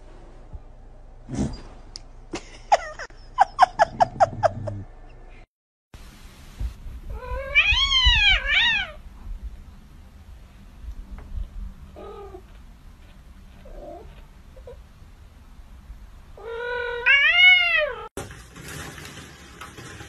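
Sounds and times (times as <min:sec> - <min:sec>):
cat crying and meowing: 0:07.1 - 0:09.0, 0:16.4 - 0:18.1.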